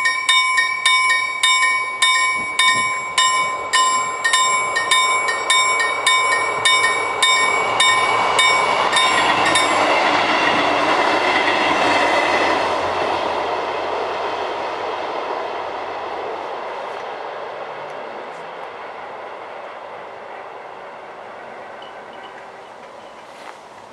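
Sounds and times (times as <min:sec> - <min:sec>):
level crossing bell ringing: 0:00.0 - 0:10.1
train wheels on rails: 0:00.0 - 0:23.9.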